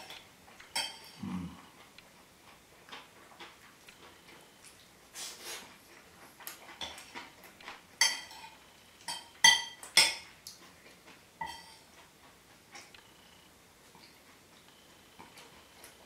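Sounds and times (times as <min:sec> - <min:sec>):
metal spoon clinking on plate: 0:00.7 - 0:01.2, 0:08.0 - 0:10.3, 0:11.4 - 0:11.8.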